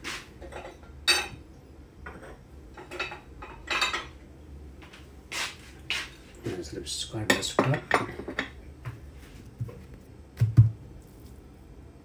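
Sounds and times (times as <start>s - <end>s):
dishes clinking: 0.4s - 1.4s, 2.0s - 4.2s, 7.3s - 8.6s.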